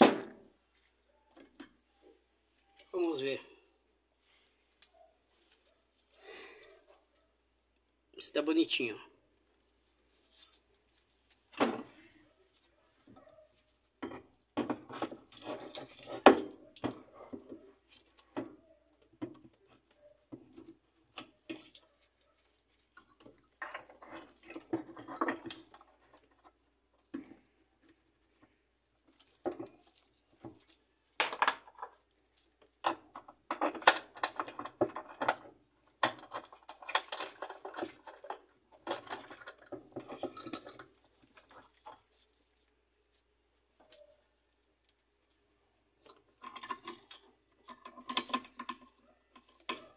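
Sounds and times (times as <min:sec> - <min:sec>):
metal parts clinking and scraping: 0:14.8 - 0:17.1, 0:22.5 - 0:26.4, 0:29.1 - 0:42.2, 0:46.0 - 0:49.9.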